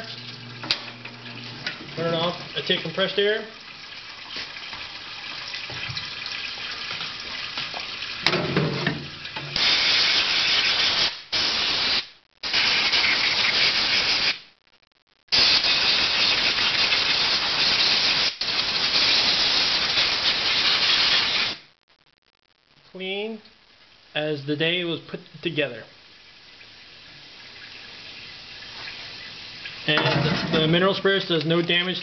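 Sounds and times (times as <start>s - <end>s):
compressed air blow gun hissing: 9.6s - 14.4s, 15.4s - 21.6s
quiet steady hiss: 21.6s - 32.0s.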